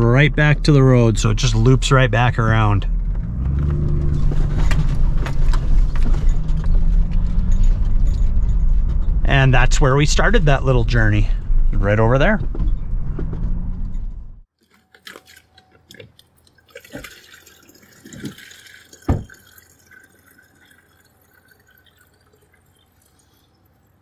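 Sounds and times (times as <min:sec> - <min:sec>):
truck driving: 0:00.0 - 0:14.5
water dripping: 0:14.6 - 0:24.0.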